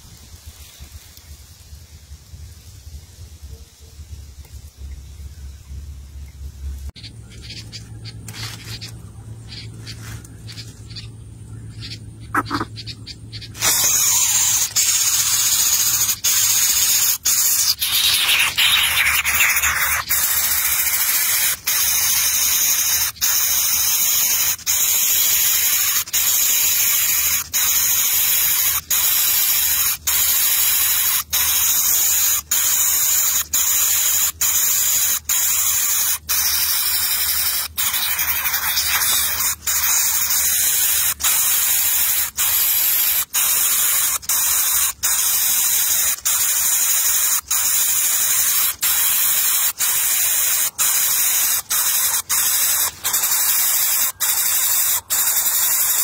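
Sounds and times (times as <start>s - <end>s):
nestling bird hissing begging calls: 13.4s - 56.0s.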